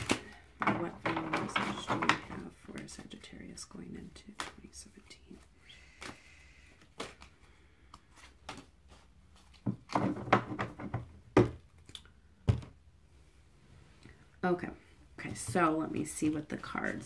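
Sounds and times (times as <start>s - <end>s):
cards being shuffled: 4.0s - 10.1s
cards knocking on tabletop: 9.6s - 11.6s.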